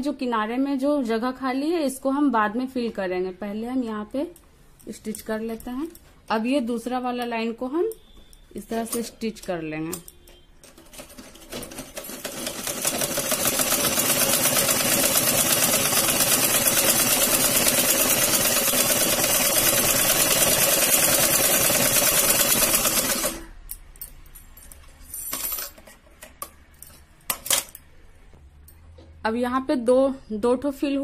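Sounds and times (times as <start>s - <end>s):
sewing machine stitching: 10.8s - 23.5s.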